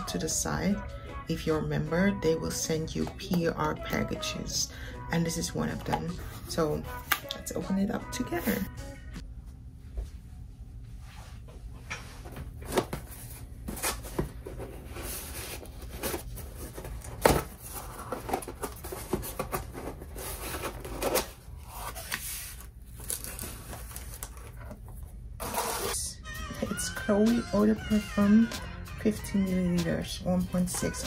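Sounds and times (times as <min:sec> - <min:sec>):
packaging rustling: 0:12.6 - 0:26.0.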